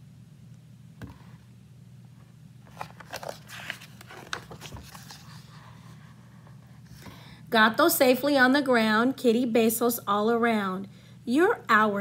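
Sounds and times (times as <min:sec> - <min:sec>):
steady low hum: 0:00.0 - 0:12.0
book pages turning: 0:02.6 - 0:05.8
paper rustling and clicks: 0:02.7 - 0:05.3.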